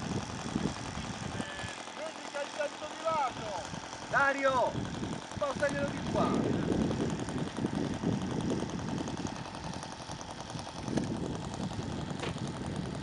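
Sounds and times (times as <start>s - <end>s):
model plane engine idling: 0.0s - 13.0s.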